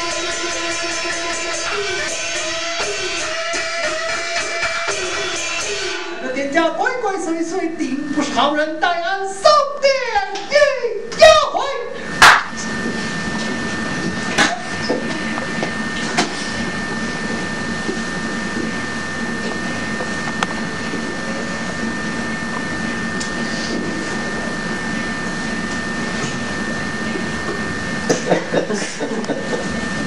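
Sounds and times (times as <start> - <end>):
steady hiss and hum: 0.0 - 30.0
thin high whine: 0.0 - 30.0.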